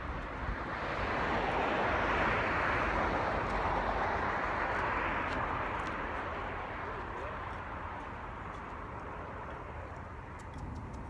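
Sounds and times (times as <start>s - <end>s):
car passing tyre noise: 0.0s - 6.8s.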